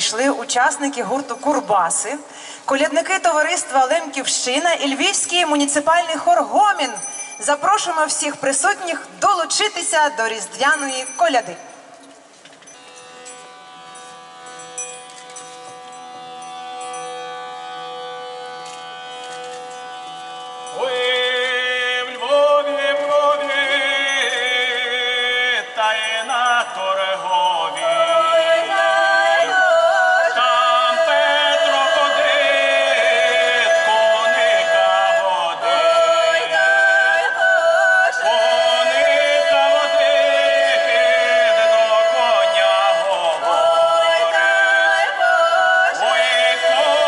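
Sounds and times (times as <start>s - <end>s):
steady held note: 12.8s - 21.8s
folk choir singing a carol: 15.7s - 47.0s.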